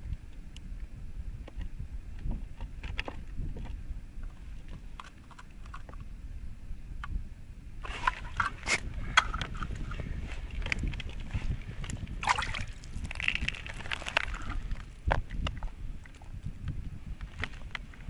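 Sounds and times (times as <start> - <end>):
wind buffeting microphone: 0.0 - 18.0
crunching and rustling on snow: 12.4 - 15.0.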